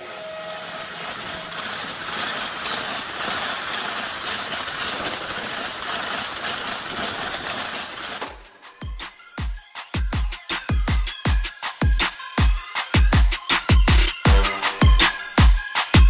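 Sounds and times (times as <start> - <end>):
train passing at speed: 0.0 - 8.2.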